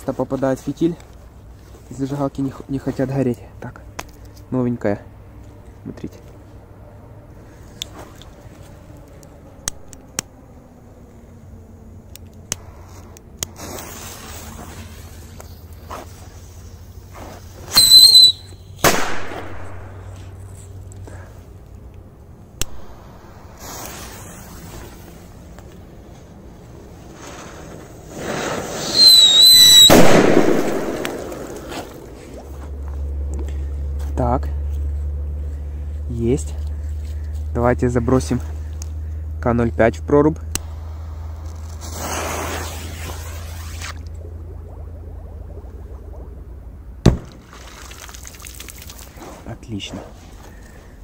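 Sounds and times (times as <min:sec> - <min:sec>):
firecracker fuse hissing: 0:12.8 - 0:18.4, 0:23.0 - 0:25.4, 0:27.0 - 0:31.9, 0:40.7 - 0:43.9
high whistle: 0:17.7 - 0:18.8, 0:28.8 - 0:30.0
firecracker bang: 0:17.7 - 0:20.0, 0:28.8 - 0:31.8, 0:47.0 - 0:47.4.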